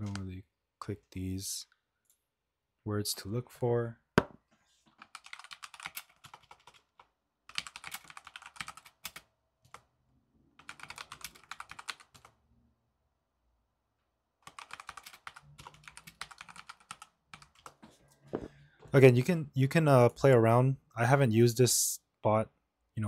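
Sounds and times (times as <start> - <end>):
computer keyboard typing: 0.0 - 0.3, 4.9 - 9.9, 10.6 - 12.4, 14.4 - 17.8.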